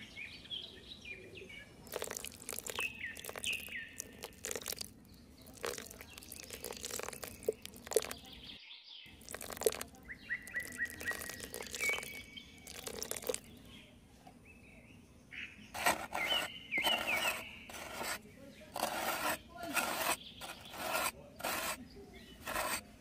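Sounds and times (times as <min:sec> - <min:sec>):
small birds chirping: 0:00.0 - 0:23.0
cement poured from metal bowl: 0:01.9 - 0:08.3, 0:09.1 - 0:13.5, 0:15.8 - 0:18.2, 0:22.4 - 0:22.8
trowel scraping cement: 0:15.8 - 0:23.0.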